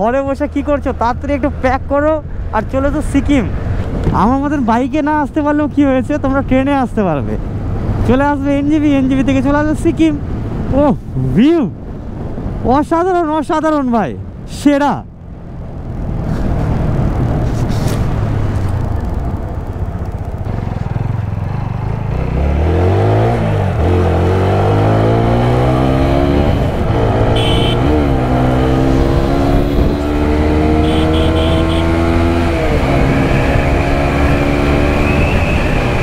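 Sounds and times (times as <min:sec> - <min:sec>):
motorcycle engine accelerating: 0:15.2 - 0:36.0
wind rushing on helmet: 0:15.6 - 0:21.5, 0:25.3 - 0:30.8.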